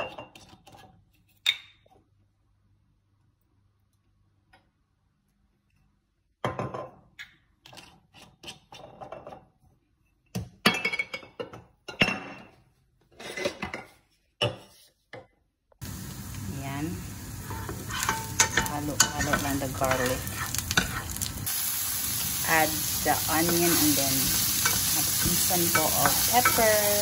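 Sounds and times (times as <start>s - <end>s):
utensils clinking against pot: 17.4s - 21.3s, 23.3s - 27.0s.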